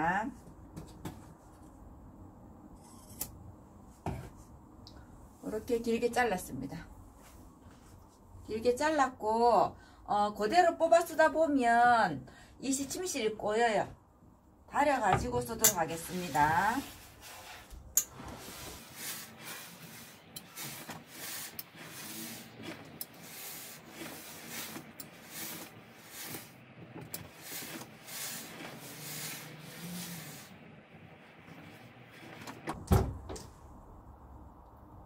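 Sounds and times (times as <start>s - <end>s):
steam iron hissing: 16.0s - 26.6s, 27.2s - 30.7s.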